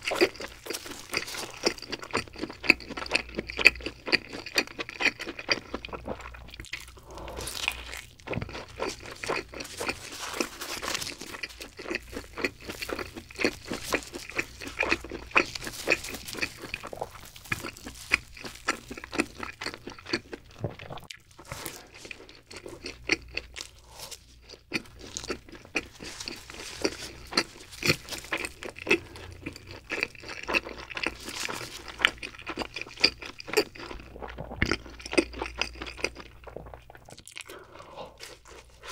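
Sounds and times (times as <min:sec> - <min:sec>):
chewing pizza crunches: 0:00.0 - 0:38.9.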